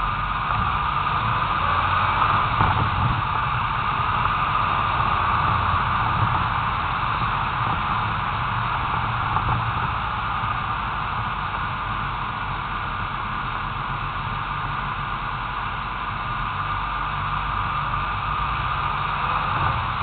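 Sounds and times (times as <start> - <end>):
low rumble: 0.0 - 20.0
wind and road noise: 0.0 - 20.0.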